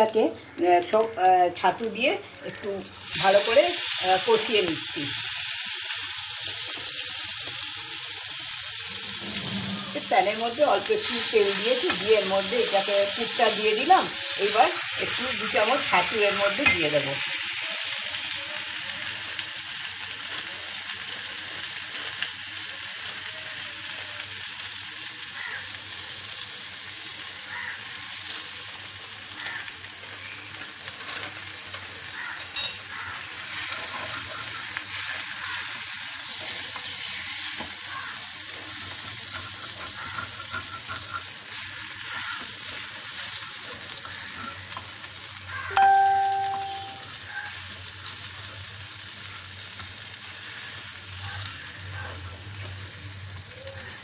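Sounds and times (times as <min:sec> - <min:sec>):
fish frying in a pan: 0:00.0 - 0:54.0
wooden spatula scraping pan: 0:08.9 - 0:10.8.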